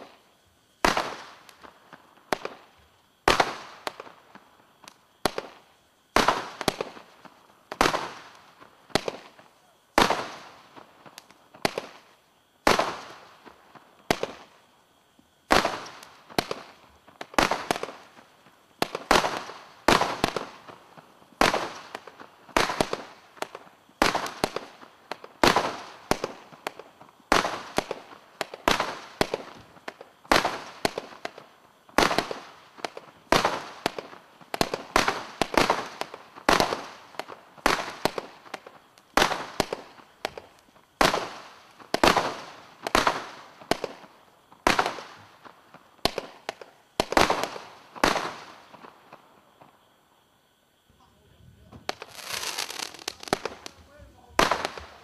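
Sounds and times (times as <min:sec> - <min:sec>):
firework cake bangs: 0:51.6 - 0:55.0.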